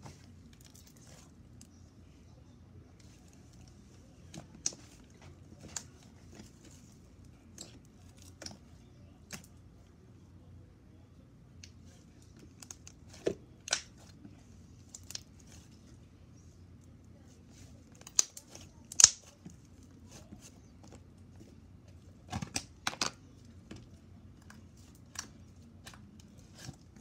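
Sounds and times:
slime popping and crackling: 0:18.0 - 0:19.3.

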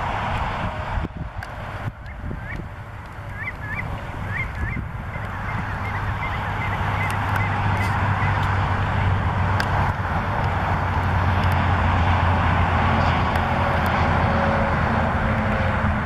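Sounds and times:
highway traffic noise: 0:00.0 - 0:16.0
shorebird calling: 0:02.0 - 0:08.5.

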